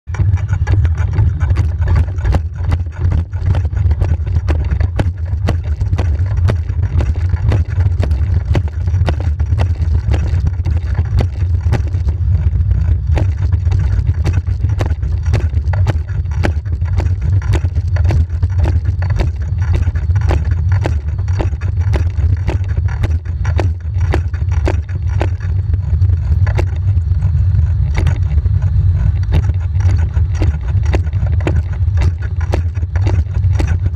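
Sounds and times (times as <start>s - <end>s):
wheels and roller humming: 0.0s - 33.9s.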